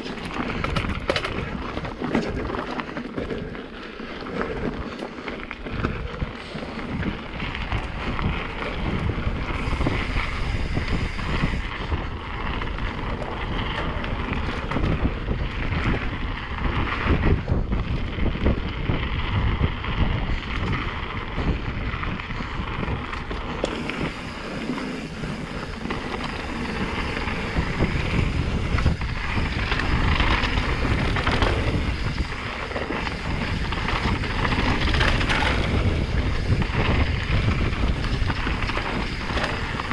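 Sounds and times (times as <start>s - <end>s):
bike rattling: 0.0s - 39.9s
tyres over dirt and stones: 0.0s - 39.9s
wind on microphone: 4.3s - 39.9s.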